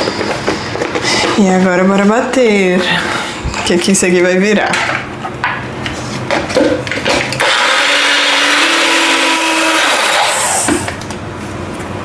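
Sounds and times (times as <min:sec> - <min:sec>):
electric blender running: 0:07.1 - 0:11.0.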